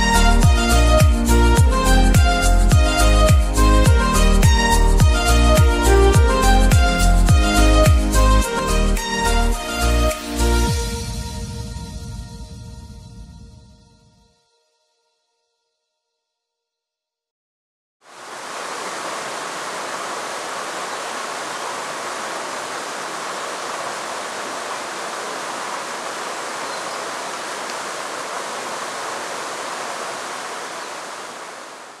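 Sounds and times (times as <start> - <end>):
stream cascade rushing: 18.0 - 32.0.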